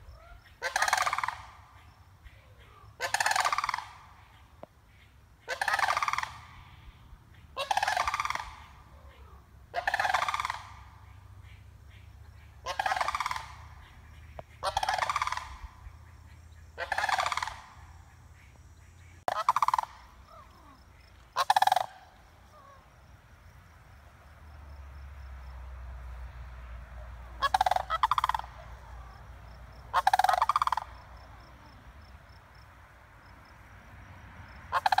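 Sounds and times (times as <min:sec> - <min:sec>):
cranes rattling calls: 0:00.1 - 0:08.9, 0:09.7 - 0:22.9, 0:27.3 - 0:31.5, 0:34.7 - 0:35.0.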